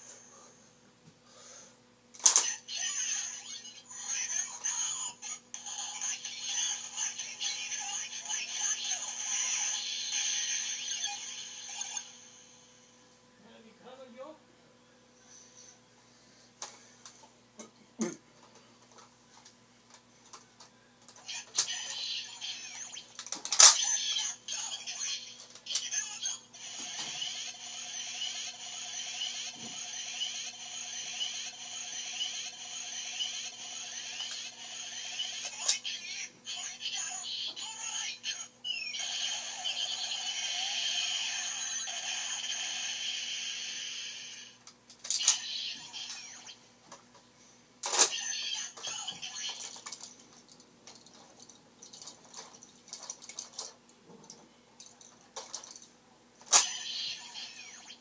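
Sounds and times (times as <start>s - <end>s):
toy electronic sound effect: 2.2s - 12.6s, 21.2s - 44.6s, 45.2s - 46.6s, 47.9s - 49.9s, 56.5s - 58.0s.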